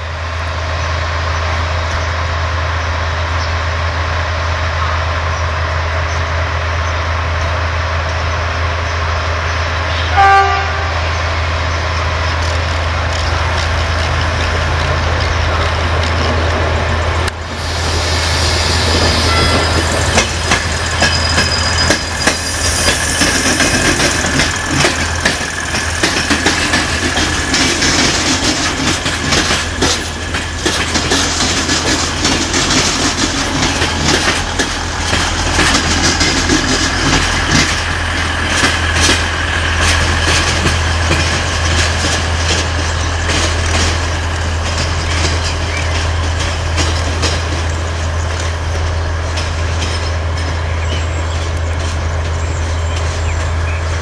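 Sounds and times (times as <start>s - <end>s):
train engine drone: 0.0s - 54.0s
train horn toot: 9.9s - 11.2s, 19.2s - 19.8s
wheel clatter over rail joints: 11.6s - 17.4s, 18.4s - 54.0s.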